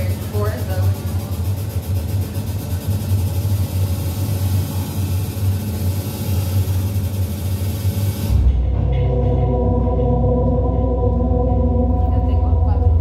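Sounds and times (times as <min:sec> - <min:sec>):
low rumble with hiss: 0:00.0 - 0:13.0
sustained chord of low tones: 0:08.6 - 0:13.0.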